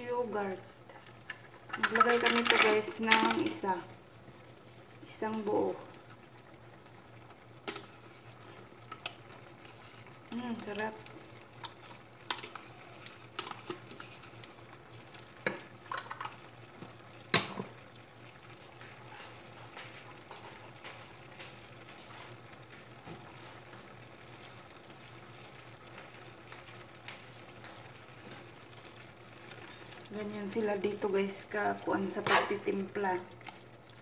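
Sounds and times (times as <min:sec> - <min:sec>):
faint sizzle from pan: 0:00.0 - 0:34.0
metal spoon scraping a pan: 0:32.1 - 0:32.8.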